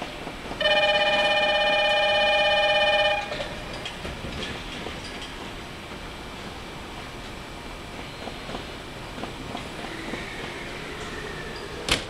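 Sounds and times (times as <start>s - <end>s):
station background noise: 0.0s - 12.0s
buzzing warning tone: 0.6s - 3.4s.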